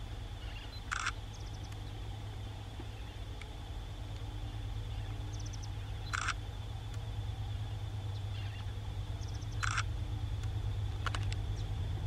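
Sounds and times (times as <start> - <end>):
diesel locomotives rumbling: 0.0 - 12.0
bird calling: 0.4 - 2.0, 2.8 - 3.3, 4.4 - 6.4, 7.5 - 9.9.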